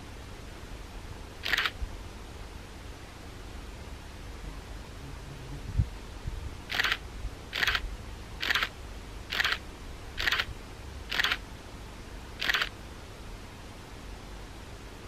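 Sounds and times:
camera shutter firing: 1.4 - 1.8, 6.7 - 7.8, 8.4 - 8.7, 9.3 - 9.6, 10.2 - 10.5, 11.1 - 11.4, 12.4 - 12.7.

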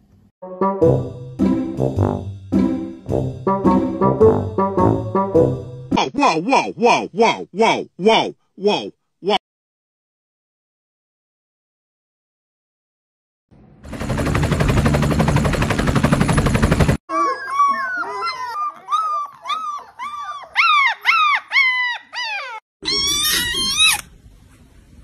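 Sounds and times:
puppies squeaking and whining: 17.1 - 24.0
kitten meowing: 22.8 - 24.1.

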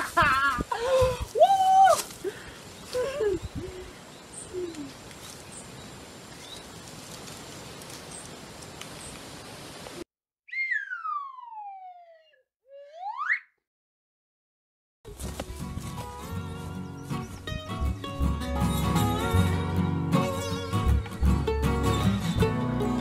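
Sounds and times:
faint outdoor background: 0.0 - 13.6, 15.1 - 23.0
descending whistle: 10.5 - 13.5.

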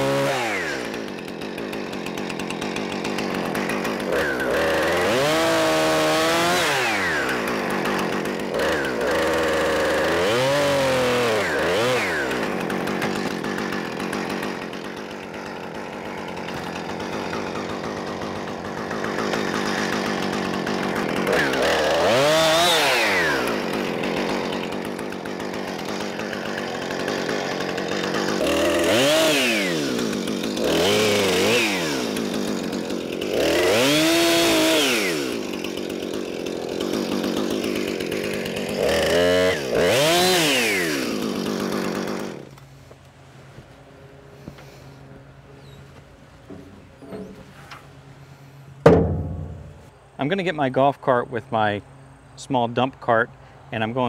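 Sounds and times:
chainsaw revving: 0.0 - 42.8.

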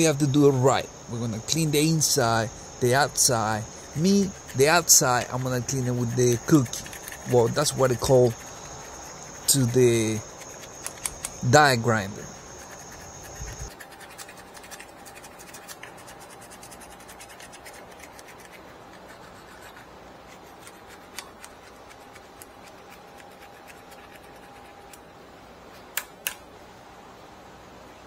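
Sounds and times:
low steady hum: 0.0 - 28.0
faint scratching and rubbing: 2.9 - 11.0, 12.0 - 25.0
sharp clicks: 10.6 - 11.4.

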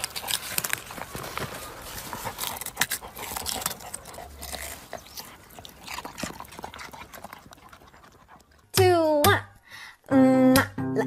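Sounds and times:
dog rustling among plants: 0.0 - 6.7
dog crunching root vegetable: 0.0 - 8.8.

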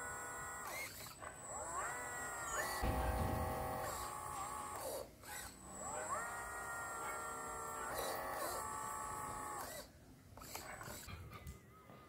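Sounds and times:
small electric motors whining: 0.0 - 11.1.

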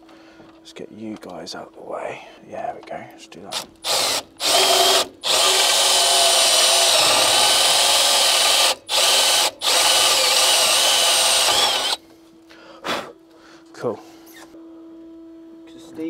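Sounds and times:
cordless drill whining into metal: 3.5 - 12.0.

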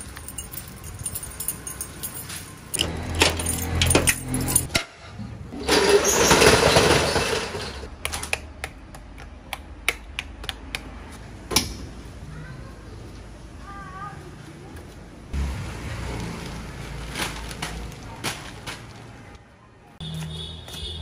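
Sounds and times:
metal jangling and clattering: 0.0 - 4.7.

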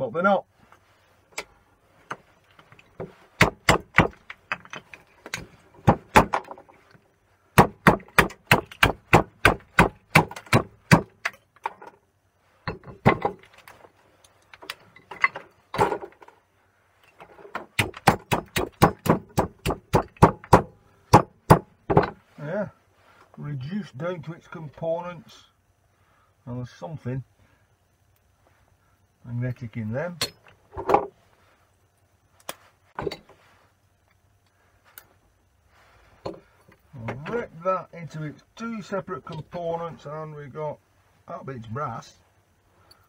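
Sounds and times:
hammer smashing wood on steel: 5.8 - 6.5, 7.6 - 11.3, 17.6 - 22.2.

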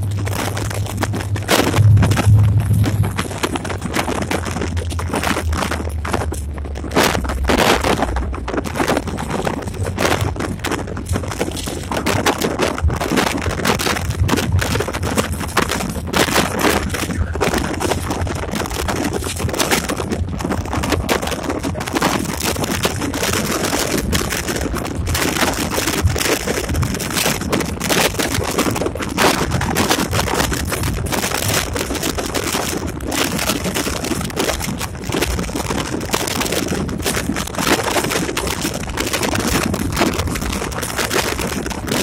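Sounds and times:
diesel locomotive engine running: 0.0 - 7.3
clatter from rough track: 0.0 - 42.0
wind buffeting microphone: 0.0 - 42.0.

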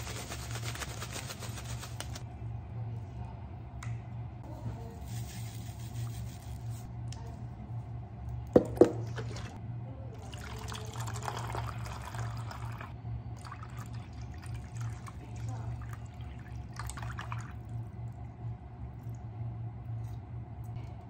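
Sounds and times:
granules shaken into plastic jug: 0.0 - 2.2
liquid pouring into jug: 10.2 - 18.2.

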